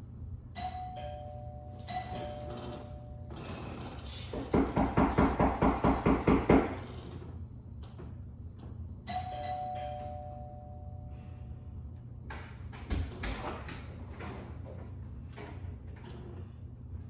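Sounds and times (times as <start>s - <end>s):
two-tone doorbell chime: 0.5s - 3.5s, 9.1s - 11.4s.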